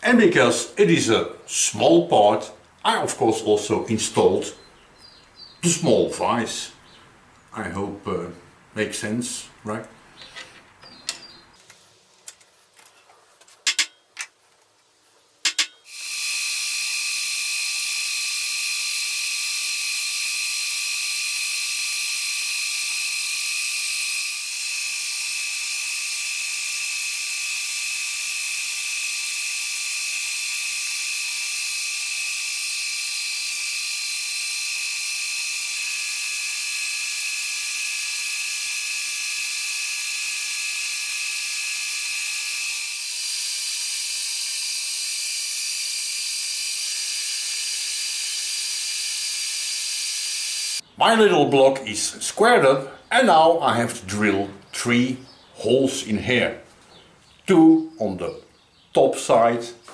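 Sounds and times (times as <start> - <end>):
sharp clicks: 15.4 - 15.9
milling machine cutting metal: 15.4 - 50.8.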